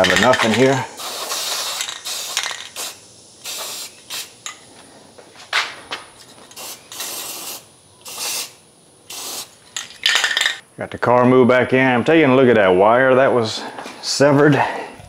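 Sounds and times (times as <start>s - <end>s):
aerosol can spraying: 0.0s - 4.6s, 6.2s - 9.6s.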